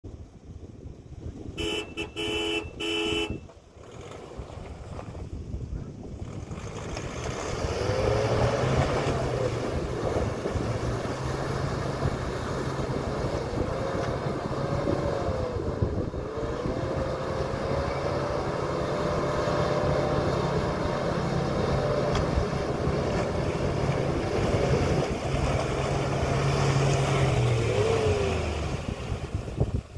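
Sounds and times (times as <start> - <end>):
diesel engine revving under load: 6.2 - 29.8.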